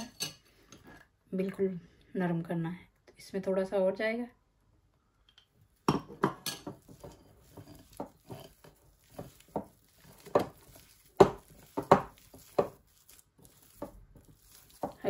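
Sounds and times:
glass bowl knocking and clinking: 5.9s - 12.8s.

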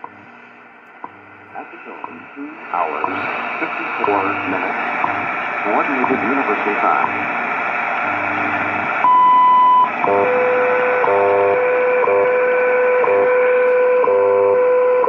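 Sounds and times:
radio hiss and static: 0.0s - 14.0s
long high time signal tone: 9.0s - 15.0s.

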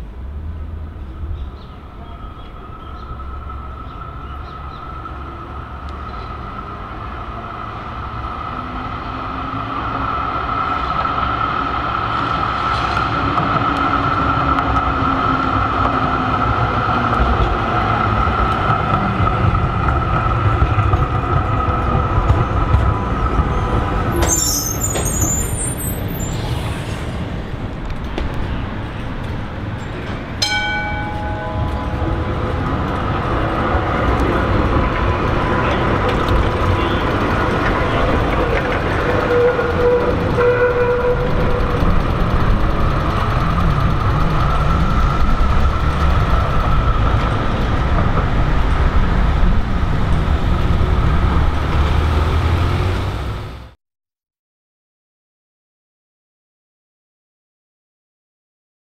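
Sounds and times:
tram passing on tracks: 0.0s - 53.8s.

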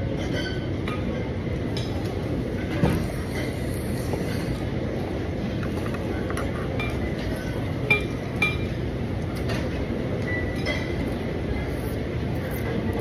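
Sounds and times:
room noise: 0.0s - 13.0s.

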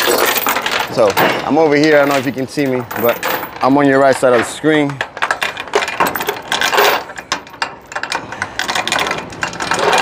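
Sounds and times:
metal chain clinking and rattling: 0.0s - 10.0s.

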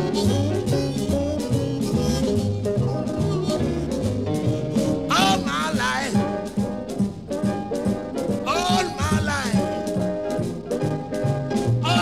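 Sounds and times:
live blues band playing: 0.0s - 12.0s
walking bass line: 0.0s - 12.0s.

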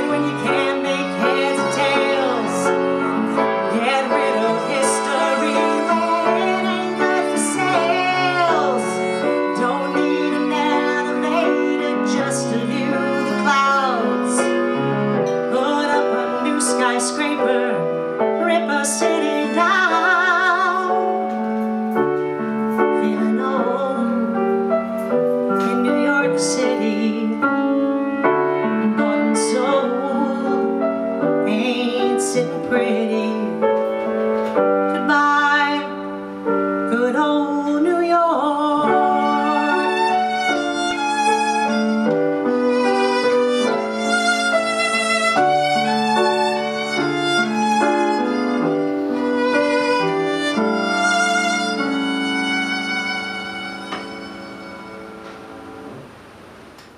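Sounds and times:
violin with vibrato: 0.0s - 24.0s, 38.8s - 55.9s
piano chords: 0.0s - 56.9s.

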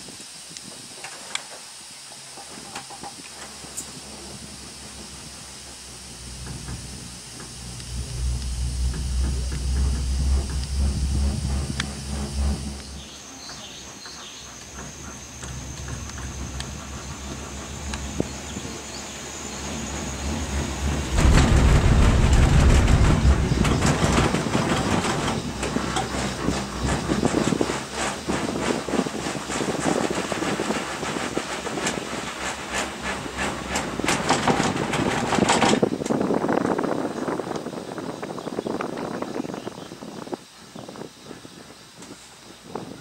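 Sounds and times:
gondola low hum: 0.7s - 43.0s
cabin rumbling over wheels: 2.4s - 36.7s.

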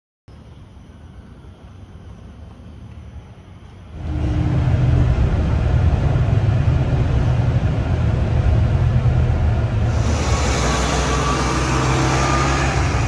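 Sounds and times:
bus engine rumble inside cabin: 3.2s - 13.0s.

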